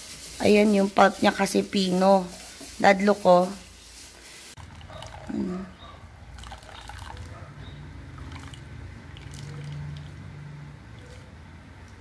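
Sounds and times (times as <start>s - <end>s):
juice trickling into plastic pitcher: 4.6s - 5.5s, 6.3s - 7.4s, 8.1s - 10.2s.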